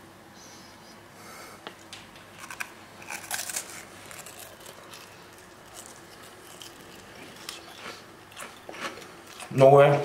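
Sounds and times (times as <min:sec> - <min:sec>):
faint chewing: 0:01.6 - 0:10.0
rice cake crunching: 0:02.4 - 0:10.0.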